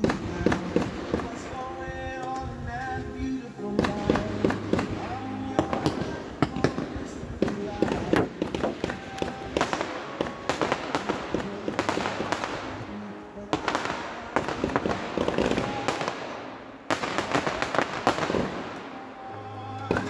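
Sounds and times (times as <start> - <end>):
fireworks bangs and crackling: 0.0 - 2.0, 3.8 - 19.1.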